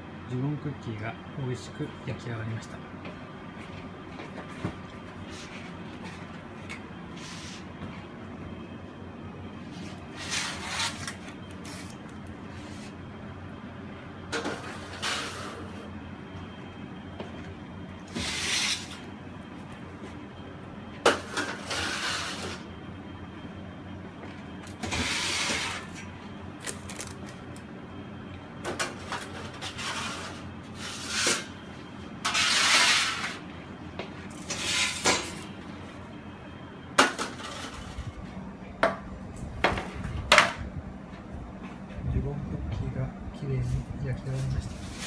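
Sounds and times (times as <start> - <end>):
baking sheets scraping on rack: 7.2 - 7.7, 9.7 - 13.0, 14.4 - 15.8, 18.1 - 19.1, 21.1 - 22.7, 24.8 - 26.0, 29.0 - 31.6, 32.2 - 33.4, 34.3 - 35.4, 37.2 - 38.1, 44.3 - 45.0.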